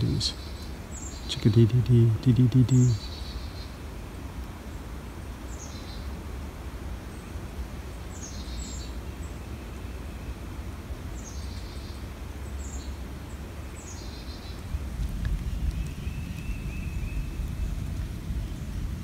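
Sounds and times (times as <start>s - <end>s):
chickadees calling: 0.0s - 3.8s
steady low rumble: 14.5s - 19.0s.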